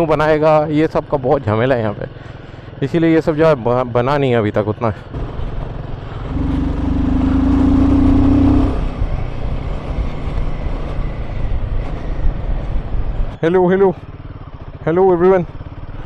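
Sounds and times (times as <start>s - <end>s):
road noise: 0.0s - 16.0s
motorcycle engine under throttle: 5.2s - 9.6s.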